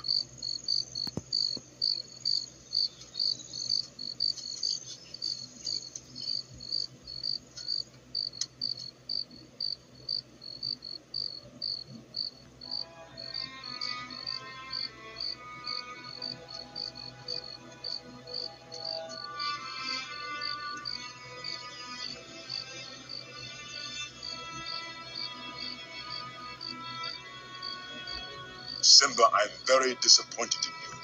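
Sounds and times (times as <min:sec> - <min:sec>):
crickets chirping: 0:00.0 - 0:31.0
soft music: 0:11.0 - 0:31.0.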